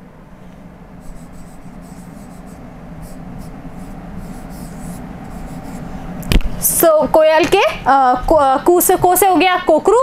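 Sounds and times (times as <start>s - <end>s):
faint low hum: 0.0s - 10.0s
pen scratching on writing board: 1.0s - 5.9s.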